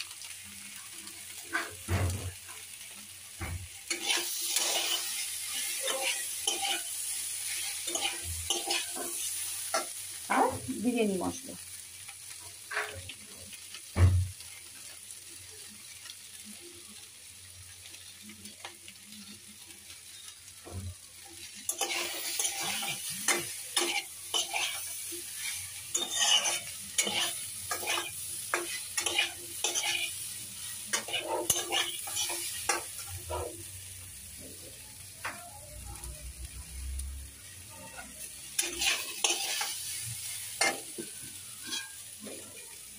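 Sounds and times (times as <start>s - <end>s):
vegetables sizzling in a pan: 0.0s - 42.9s
wooden spatula scraping a pan: 3.9s - 6.9s, 21.7s - 30.1s, 30.9s - 33.6s, 38.0s - 42.6s.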